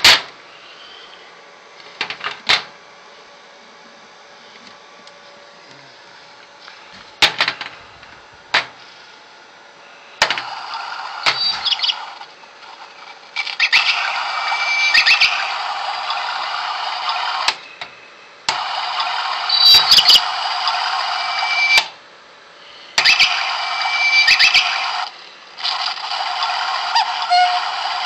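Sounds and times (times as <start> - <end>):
short high electronic chirps: 19.5 - 20.2.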